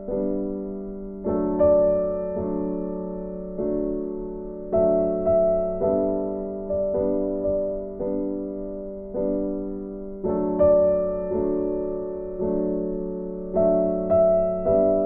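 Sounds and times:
slow gentle piano music: 0.0 - 15.0.

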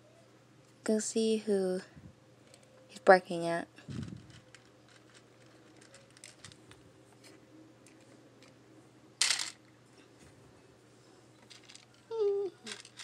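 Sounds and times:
beads clicking onto a pegboard: 9.2 - 9.6.

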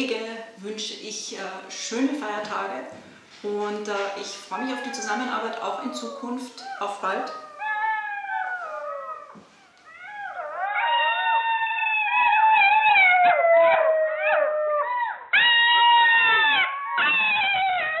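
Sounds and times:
jackals howling: 4.2 - 18.0.

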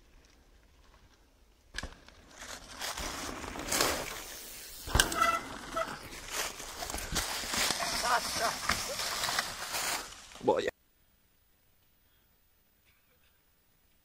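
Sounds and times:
bike tyres crunching on dirt: 0.0 - 10.7.

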